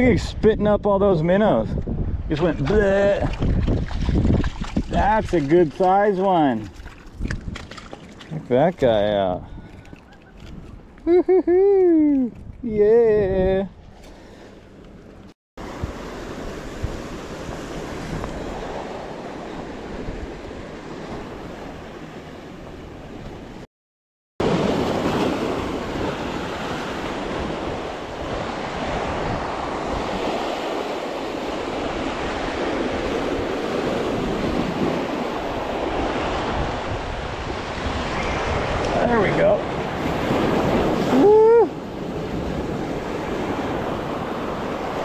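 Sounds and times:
surf washing over rocks: 24.4 - 45.0.

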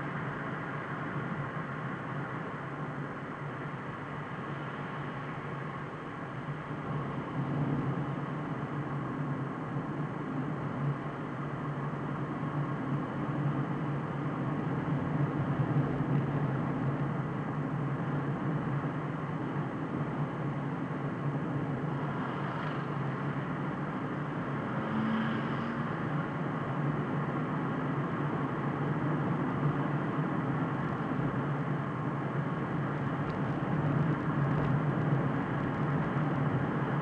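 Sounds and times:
tyre and road noise: 29.1 - 37.0.

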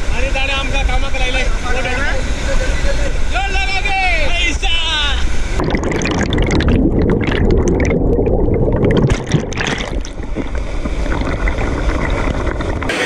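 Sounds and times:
sharp splashes: 5.6 - 13.0.

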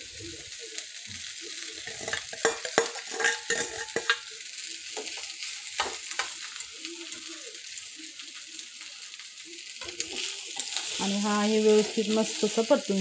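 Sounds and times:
hot oil sizzling: 0.0 - 13.0
spatula scraping and knocking metal: 1.9 - 4.2.

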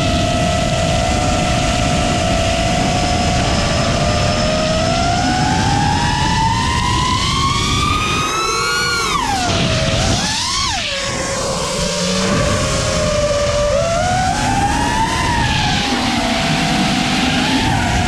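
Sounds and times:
drone motors and propellers whining: 0.0 - 18.0
rush of air: 5.2 - 18.0.

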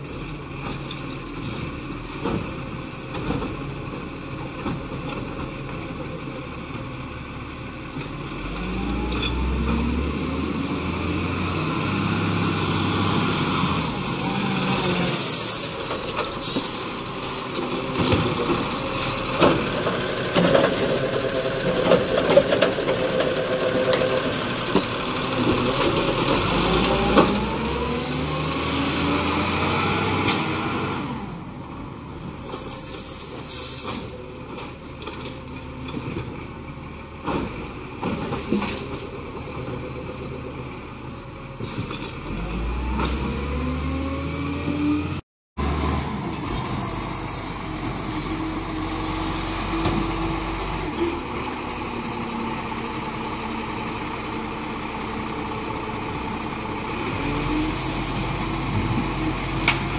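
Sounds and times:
garbage truck engine revving: 8.2 - 31.6, 41.6 - 59.9.

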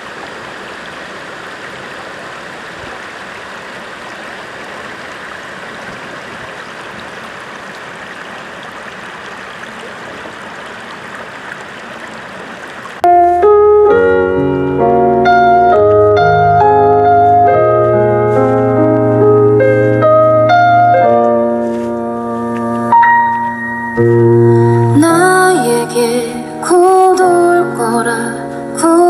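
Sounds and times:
stream running over stones: 0.0 - 13.5
piano music: 13.0 - 29.0.

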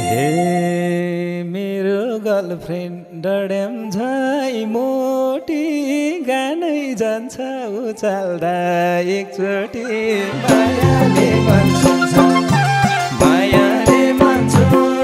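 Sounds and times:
person singing unaccompanied: 0.0 - 15.0.

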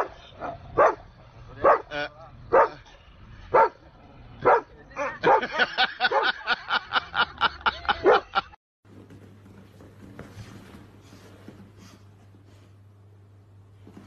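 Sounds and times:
dog barking: 0.0 - 1.9, 2.5 - 2.8, 3.5 - 3.8, 4.4 - 6.4.

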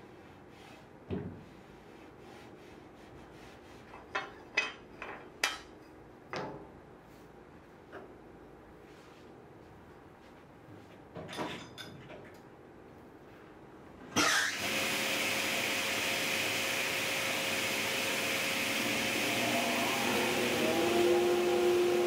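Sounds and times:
table saw whirring: 14.2 - 22.0.

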